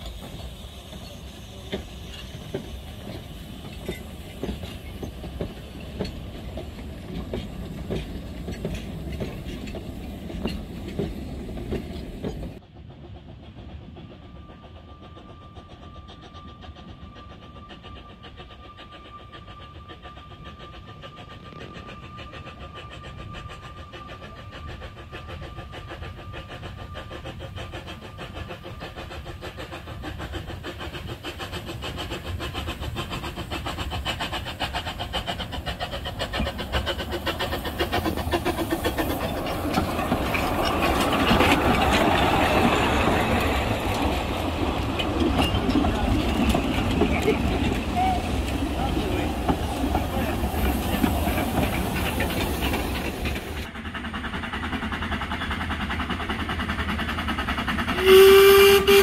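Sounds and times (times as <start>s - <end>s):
steam locomotive exhaust beats: 0.0s - 59.0s
train wheels clicking over rail joints: 0.0s - 59.0s.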